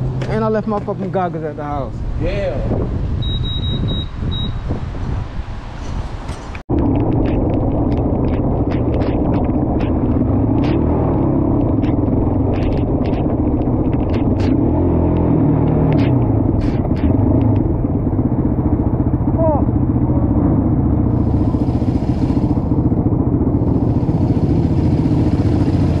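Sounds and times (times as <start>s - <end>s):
engine running at low revs: 6.7s - 26.0s
sharp ticks: 6.9s - 10.9s, 11.5s - 17.7s.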